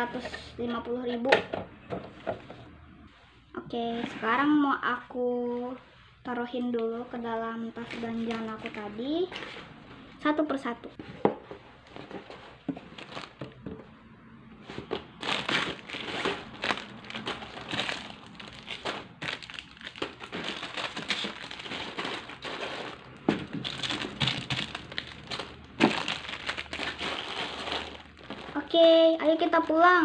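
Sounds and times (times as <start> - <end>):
plastic wrapping crinkling: 7.8 - 9.8, 11.9 - 13.6, 14.9 - 30.0.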